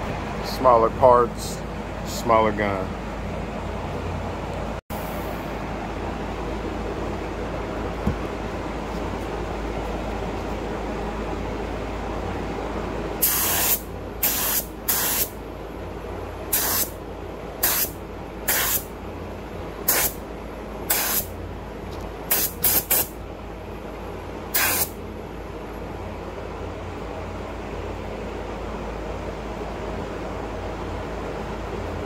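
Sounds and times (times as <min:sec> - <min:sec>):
steady low hum: 0:00.0 - 0:32.0
spray gun hiss bursts: 0:13.2 - 0:15.4, 0:16.5 - 0:17.0, 0:17.6 - 0:18.9, 0:19.9 - 0:20.2, 0:20.9 - 0:21.3, 0:22.3 - 0:23.2, 0:24.5 - 0:25.0.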